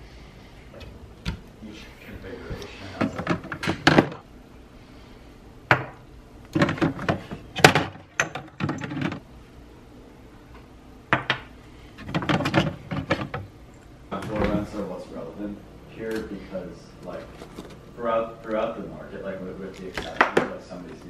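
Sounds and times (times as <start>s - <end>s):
cabinet knocks and clicks: 3.0s - 4.2s, 5.7s - 9.2s, 11.2s - 13.5s.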